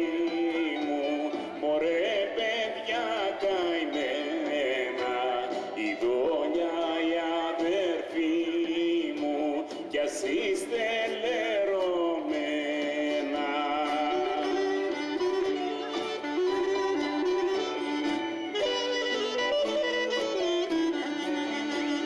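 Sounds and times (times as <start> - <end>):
acoustic guitar: 0.0 - 22.0
live band playing folk song: 0.0 - 22.0.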